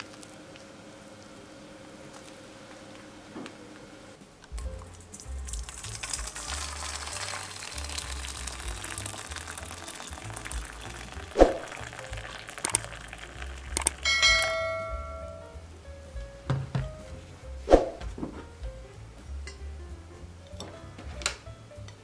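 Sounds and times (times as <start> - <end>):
background music: 4.5 - 22.0
water pouring into metal bowl: 4.8 - 14.5
notification chime: 14.1 - 15.6
knock: 16.4 - 17.0.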